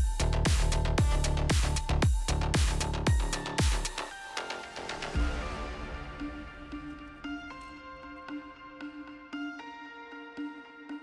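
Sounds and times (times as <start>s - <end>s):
kick drum beat: 0.0s - 4.1s
electronic dance music: 0.0s - 10.8s.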